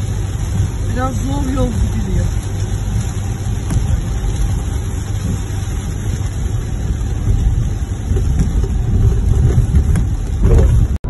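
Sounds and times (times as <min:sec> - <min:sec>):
car driving on wet road: 0:00.0 - 0:11.0.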